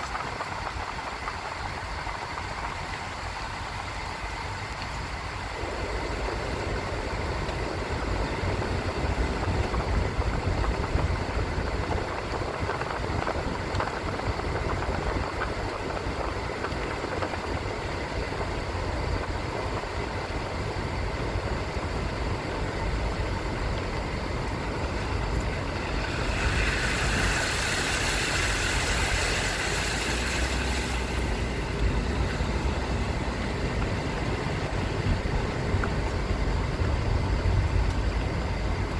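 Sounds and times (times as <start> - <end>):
car engine and tyre noise: 0.0 - 38.9
loud hiss: 25.6 - 33.0.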